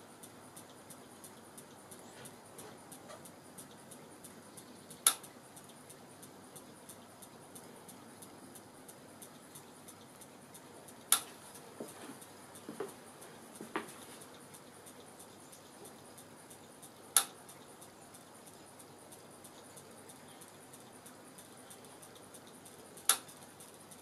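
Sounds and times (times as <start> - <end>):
mechanism ticking: 0.0 - 24.0
sharp clicks: 0.0 - 24.0.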